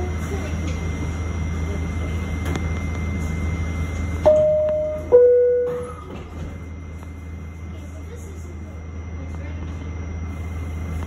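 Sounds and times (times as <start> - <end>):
subway train humming: 0.0 - 11.0
two-note door chime: 4.2 - 6.1.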